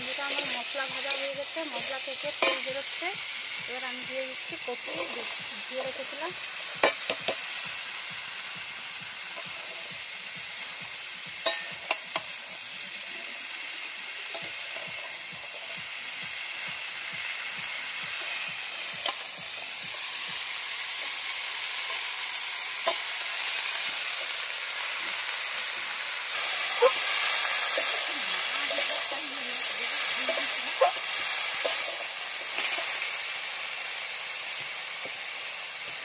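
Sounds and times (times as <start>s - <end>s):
cabbage sizzling in oil: 0.0s - 36.0s
metal spatula clacking on pan: 2.4s - 2.7s, 11.4s - 12.3s.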